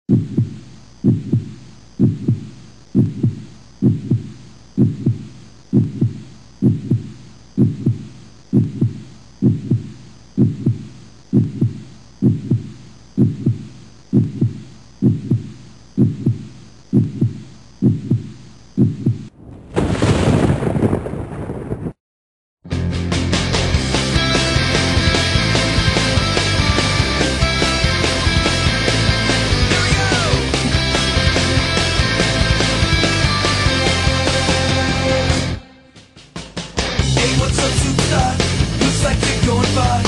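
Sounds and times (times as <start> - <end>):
heartbeat double thump: 0.1 - 19.3.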